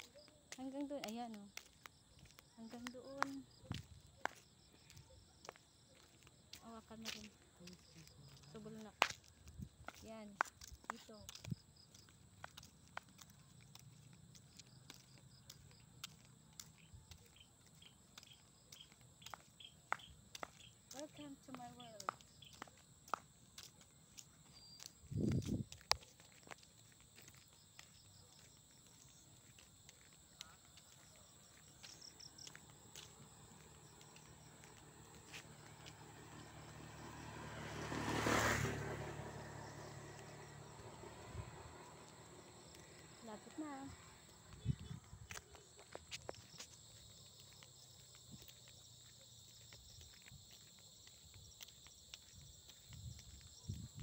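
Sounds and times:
crickets chirping: 0.0s - 54.0s
flip-flop footsteps on concrete: 0.0s - 54.0s
small vehicle passing by: 33.2s - 43.2s.

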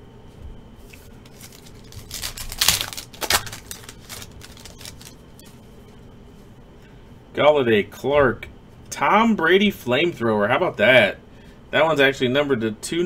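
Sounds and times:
foil pack tearing and crinkling: 1.2s - 5.2s.

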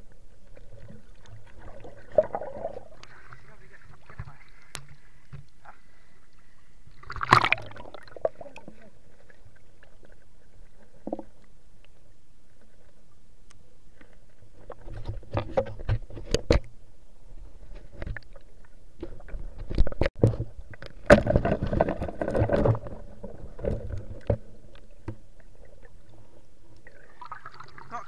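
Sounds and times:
churning water underwater: 0.0s - 28.0s
knocks and scrapes on underwater camera: 14.6s - 16.7s.

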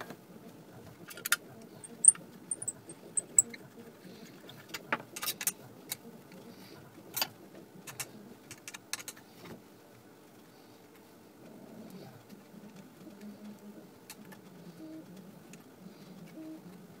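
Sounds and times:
hex key clicking on screws: 2.0s - 3.6s.

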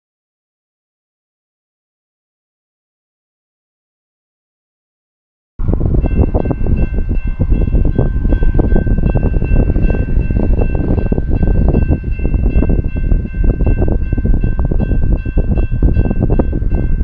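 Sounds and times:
wind buffeting microphone: 5.6s - 17.0s.

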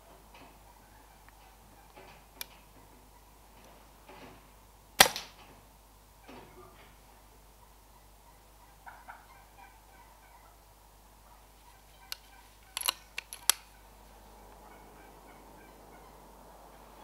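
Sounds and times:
faint bird calls: 0.6s - 3.5s, 6.2s - 17.0s
air rifle action clicks: 5.0s - 5.4s, 12.1s - 13.7s.

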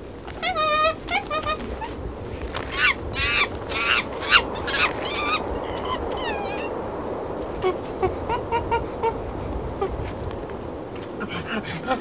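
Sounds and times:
steady hiss: 0.0s - 12.0s
monkeys calling: 0.4s - 2.0s, 2.6s - 6.8s.

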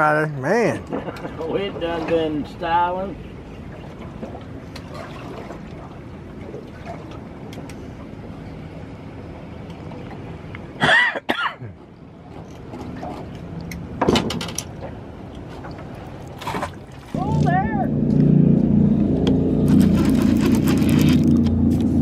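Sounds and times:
steady low rumble: 17.1s - 22.0s.

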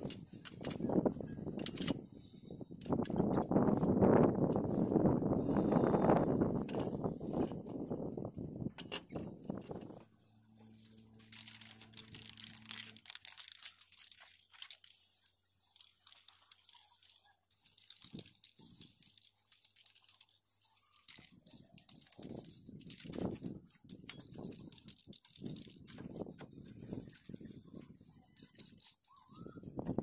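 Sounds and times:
paper crinkling and rustling: 9.5s - 30.0s.

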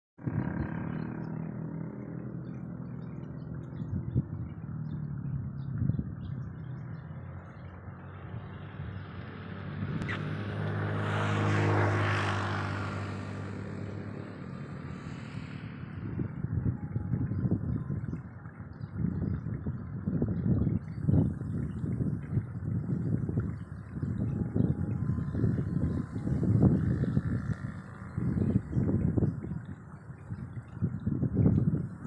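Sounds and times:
engine running: 0.2s - 19.0s
vehicle passing by: 0.2s - 32.0s.

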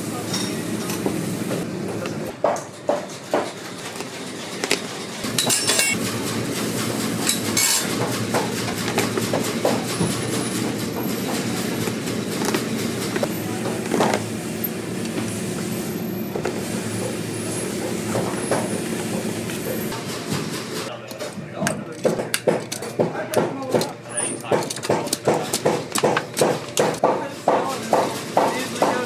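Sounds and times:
steady mechanical rumble: 3.2s - 20.9s
pincers clicking and creaking: 21.0s - 27.0s.

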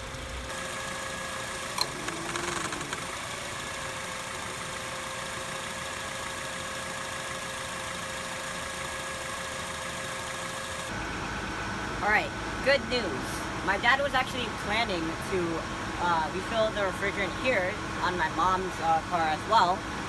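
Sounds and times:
car engine idling: 0.0s - 12.6s
faint engine whine: 0.0s - 20.0s.

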